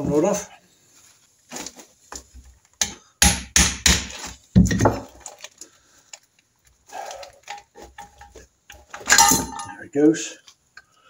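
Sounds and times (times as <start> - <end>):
sharp metal knocks: 2.8 - 4.8.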